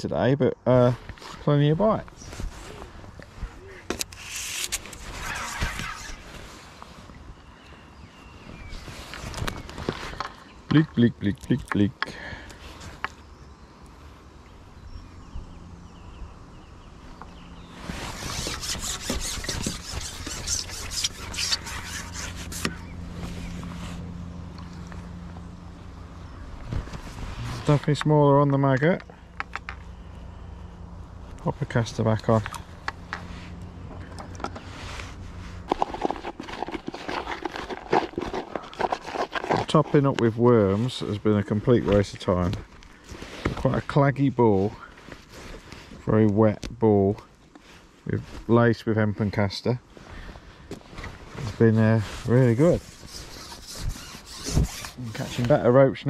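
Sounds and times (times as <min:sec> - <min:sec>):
jacket sleeve rustling against camera: 0:02.1 - 0:07.2, 0:17.7 - 0:24.2, 0:50.8 - 0:55.6
hands squeezing wet bait: 0:35.5 - 0:40.1.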